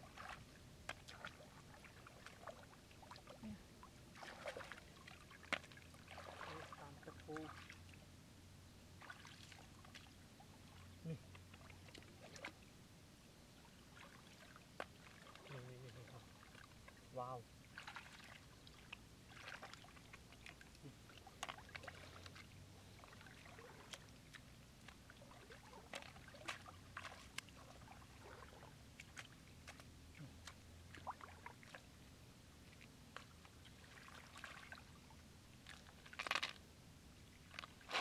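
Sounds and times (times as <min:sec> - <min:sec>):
bare feet wading: 0:00.0 - 0:07.9, 0:09.0 - 0:12.6, 0:13.9 - 0:17.0, 0:17.7 - 0:31.9, 0:32.6 - 0:35.0, 0:37.5 - 0:38.0
splashing and trickling water: 0:00.0 - 0:08.0, 0:09.0 - 0:12.6, 0:13.6 - 0:36.6.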